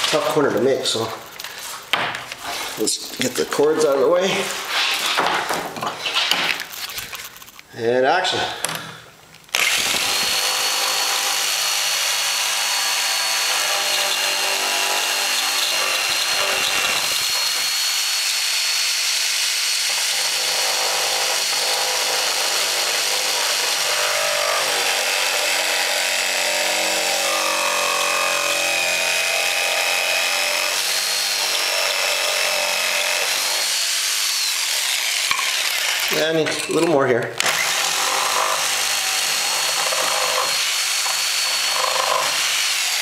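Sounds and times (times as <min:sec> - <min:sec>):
electric jigsaw cutting: 0:09.5 - 0:36.4, 0:37.4 - 0:43.0.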